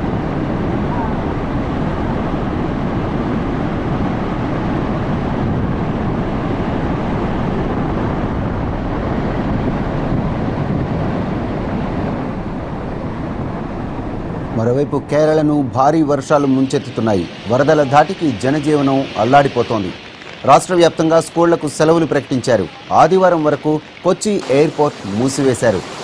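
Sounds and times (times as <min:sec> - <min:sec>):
floodwater rushing over a weir: 0:15.8 - 0:26.0.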